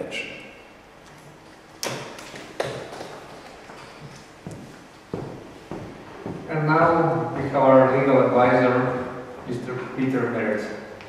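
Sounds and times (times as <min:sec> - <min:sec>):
footsteps on hard floor: 0:02.2 - 0:06.5, 0:07.2 - 0:07.6.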